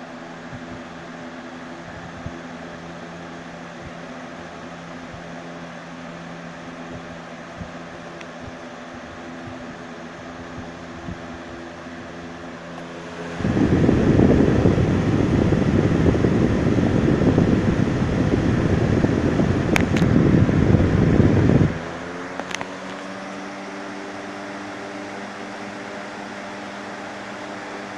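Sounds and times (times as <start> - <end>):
box fan humming: 0.0 - 27.9
wind buffeting microphone: 10.4 - 11.6, 13.0 - 21.9.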